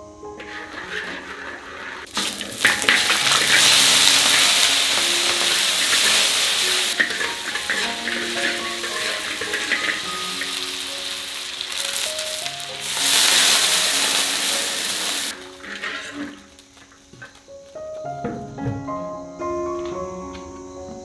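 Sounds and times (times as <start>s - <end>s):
meat sizzling in hot oil: 0.9s - 17.4s
soft background music: 2.6s - 21.0s.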